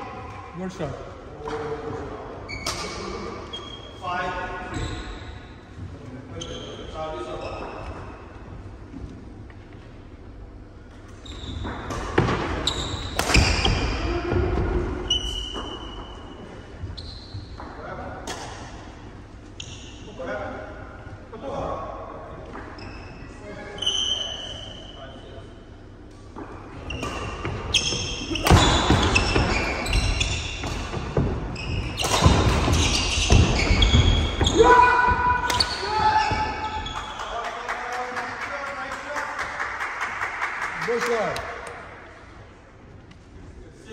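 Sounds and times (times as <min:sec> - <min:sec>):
shoes squeaking on court: 0:04.7 - 0:05.7, 0:06.3 - 0:08.3, 0:11.0 - 0:13.9, 0:15.0 - 0:18.4, 0:22.6 - 0:24.8, 0:26.3 - 0:34.7, 0:35.4 - 0:37.3
rackets striking shuttlecock: 0:13.1 - 0:13.8
shoes squeaking on wooden floor: 0:26.6 - 0:37.2.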